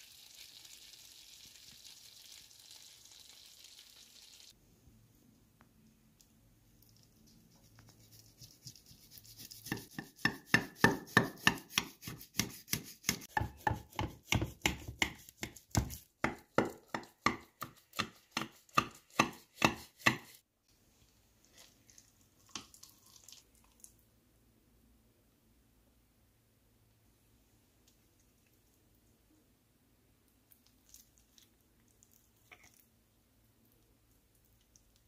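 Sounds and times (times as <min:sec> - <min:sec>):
knife cutting strokes: 0:07.7 - 0:16.1.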